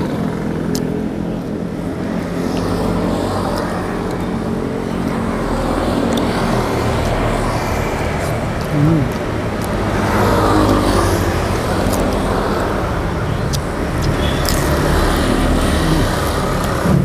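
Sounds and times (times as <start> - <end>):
road traffic: 0.0 - 17.0.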